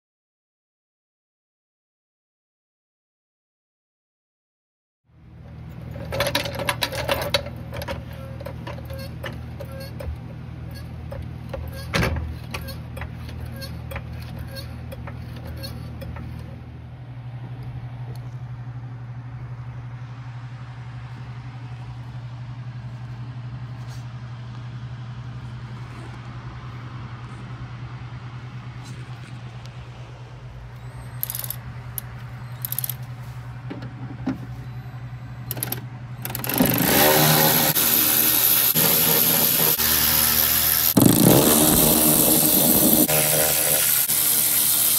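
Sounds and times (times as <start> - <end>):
steady low hum: 5.1 - 44.9
tool clicks: 31.2 - 33.1, 35.5 - 37.8
floor jack clicking: 35.5 - 40.0, 40.8 - 43.4.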